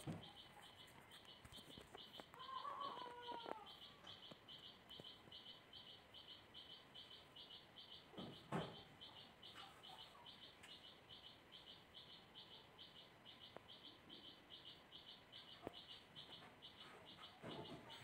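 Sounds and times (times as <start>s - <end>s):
faint high chirping: 0.0s - 18.0s.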